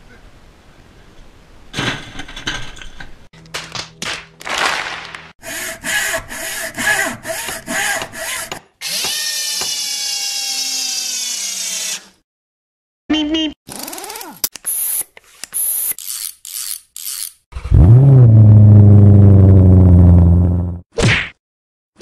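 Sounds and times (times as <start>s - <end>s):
hand saw strokes: 5.4s - 9.7s
power drill whining: 7.3s - 12.2s.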